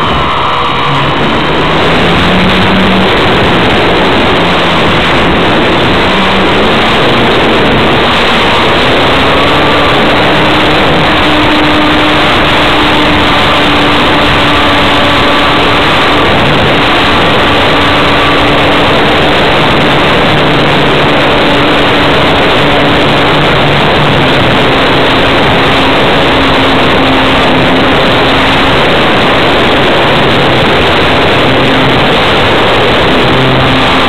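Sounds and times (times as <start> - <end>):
electric motor and propeller whine: 0.0 - 34.0
wind noise on microphone: 0.0 - 34.0.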